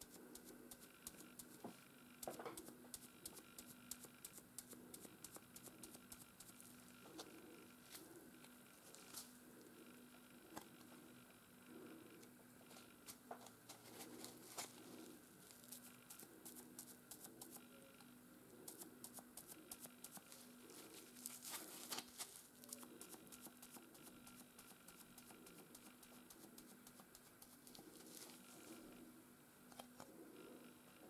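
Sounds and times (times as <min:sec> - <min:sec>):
faint low hum: 0:00.0 - 0:31.0.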